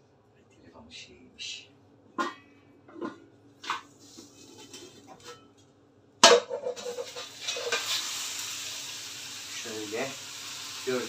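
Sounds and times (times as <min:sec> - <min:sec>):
metal pans clattering: 0:02.2 - 0:05.6, 0:06.2 - 0:08.0
frying pan clanking on stove: 0:06.2 - 0:08.1
bread sizzling in butter: 0:06.5 - 0:11.0.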